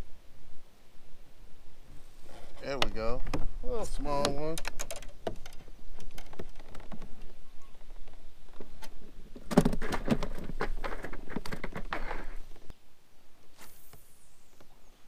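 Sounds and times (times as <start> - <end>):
knocks and rattles in plastic kayak: 4.2 - 12.3.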